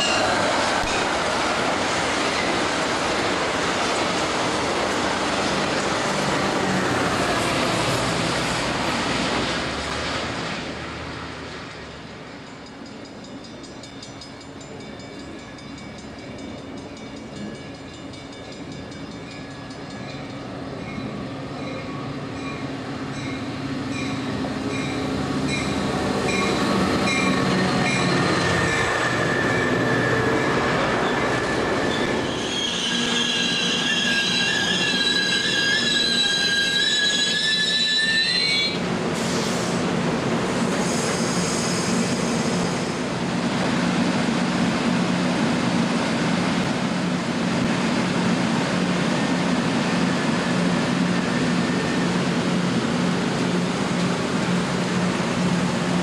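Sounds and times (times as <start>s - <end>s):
train wheels squealing: 0.0s - 0.4s, 25.6s - 39.8s, 40.6s - 43.0s
train cars rolling: 0.0s - 56.0s.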